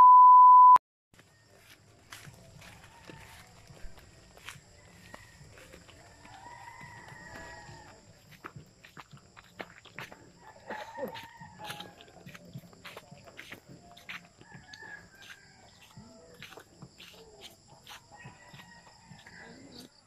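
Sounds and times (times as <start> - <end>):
rooster crowing: 2.6 - 8.4, 10.3 - 12.4, 14.1 - 17.1, 17.9 - 20.0.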